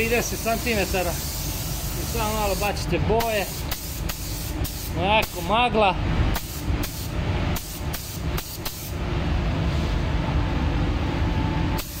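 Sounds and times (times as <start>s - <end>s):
steady low rumble: 0.0s - 12.0s
paint spray gun hissing: 0.2s - 2.8s, 3.4s - 5.4s, 6.4s - 8.9s, 11.8s - 12.0s.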